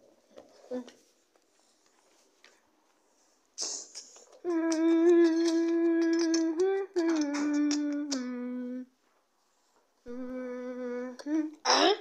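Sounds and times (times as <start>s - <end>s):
person humming: 3.6s - 8.9s, 10.1s - 12.0s.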